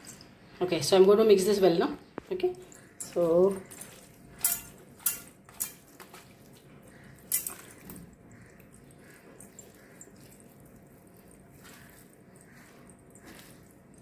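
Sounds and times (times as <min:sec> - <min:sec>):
hand squelching rubbing raw fish: 0:05.8 - 0:14.0.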